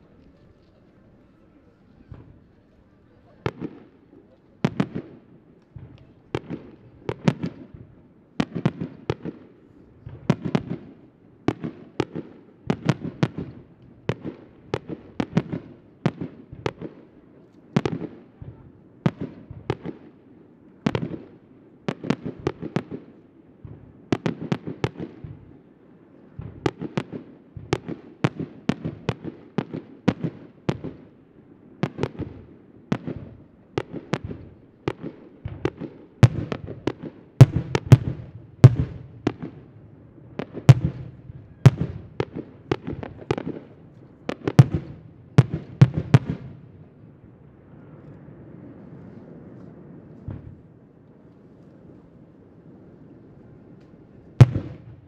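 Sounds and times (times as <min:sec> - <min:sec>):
firework bangs: 0:31.8 - 0:46.6, 0:54.4 - 0:55.0.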